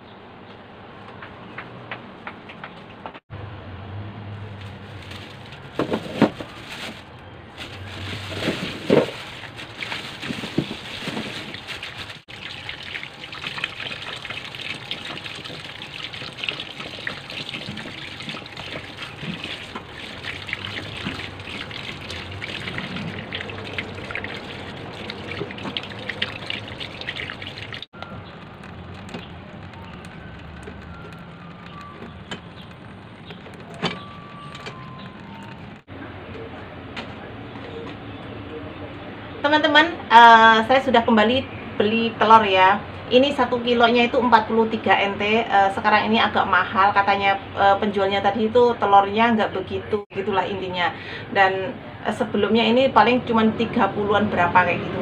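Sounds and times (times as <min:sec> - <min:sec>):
tap water running into sink: 0:12.3 - 0:27.9.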